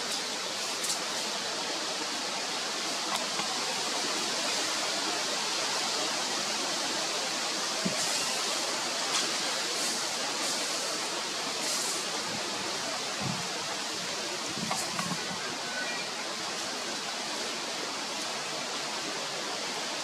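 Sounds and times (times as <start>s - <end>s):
background hiss: 0.0s - 20.0s.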